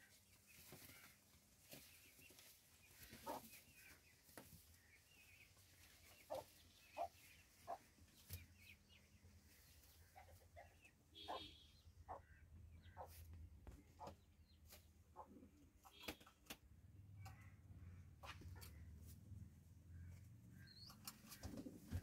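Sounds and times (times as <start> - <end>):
short clipped pigeon calls: 6.2 - 8.4, 10.0 - 16.6.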